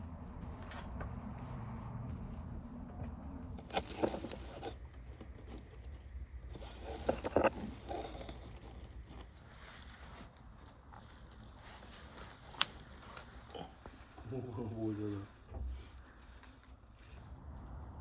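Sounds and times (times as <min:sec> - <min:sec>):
dry straw rustling: 0:06.5 - 0:15.4.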